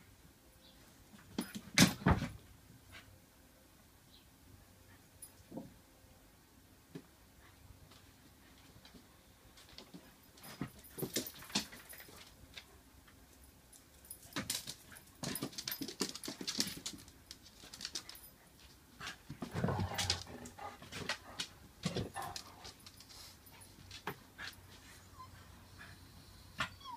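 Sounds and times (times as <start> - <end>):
dogs moving with clicks and knocks: 7.9 - 25.0
dog whimpering: 26.6 - 26.9.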